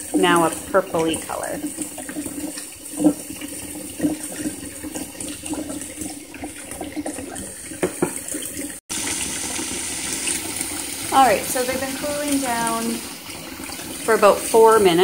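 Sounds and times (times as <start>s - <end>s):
tap water running into a pot: 0.0s - 15.0s
water splashing: 0.0s - 15.0s.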